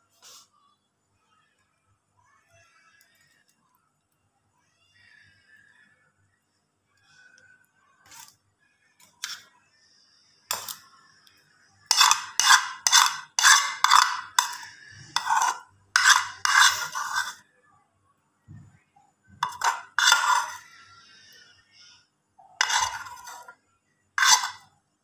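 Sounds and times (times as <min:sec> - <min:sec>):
metal utensil scraping cookware: 0:09.2 - 0:09.5, 0:10.5 - 0:10.8, 0:11.9 - 0:17.4, 0:19.4 - 0:20.7, 0:22.4 - 0:23.6, 0:24.2 - 0:24.7.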